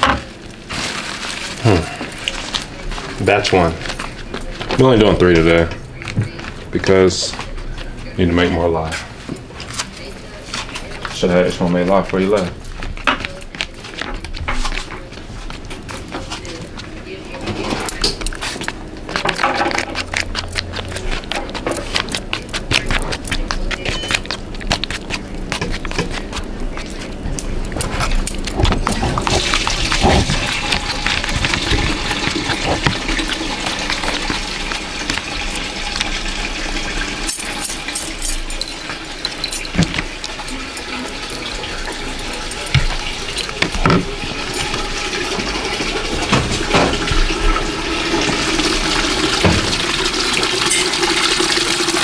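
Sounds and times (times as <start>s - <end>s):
liquid running into container: 17.8s - 52.0s.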